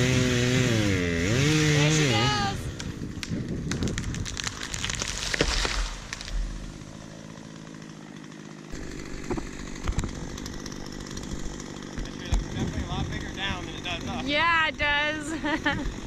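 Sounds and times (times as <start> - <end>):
distant chainsaw running: 0.0 - 16.0
tree crashing through branches: 2.8 - 12.7
tree hitting the ground: 3.1 - 12.8.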